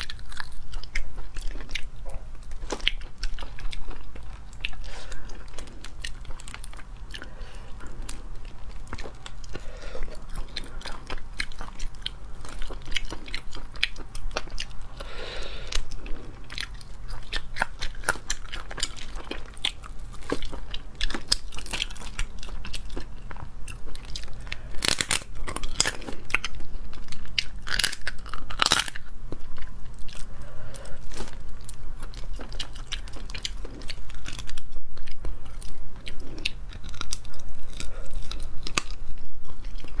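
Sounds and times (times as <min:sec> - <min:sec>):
crunching and chewing shells: 0:00.0 - 0:40.0
steady low hum: 0:00.0 - 0:40.0
shells snapping and crackling: 0:24.8 - 0:26.5, 0:27.4 - 0:29.1.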